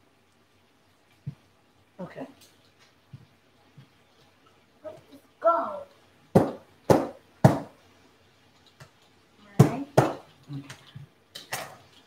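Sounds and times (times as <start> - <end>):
knife chopping on cutting board: 9.6 - 10.2.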